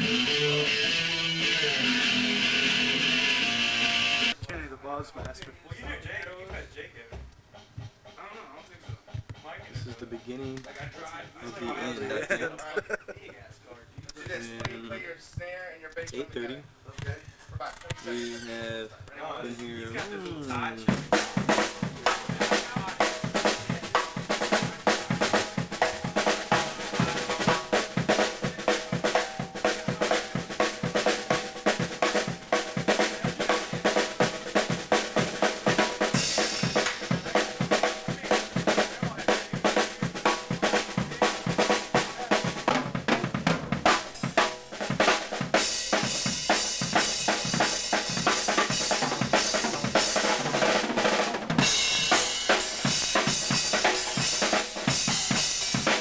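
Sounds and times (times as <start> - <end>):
cymbals: 20.9 - 50.8, 51.6 - 56.0.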